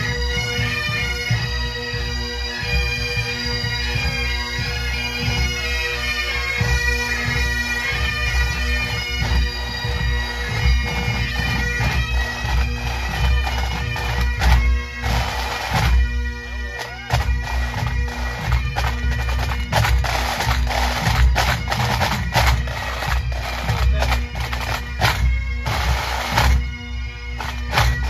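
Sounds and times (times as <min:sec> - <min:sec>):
bagpipes playing over drone: 0:00.0 - 0:28.0
snare drums rattling: 0:16.8 - 0:26.6, 0:27.4 - 0:28.0.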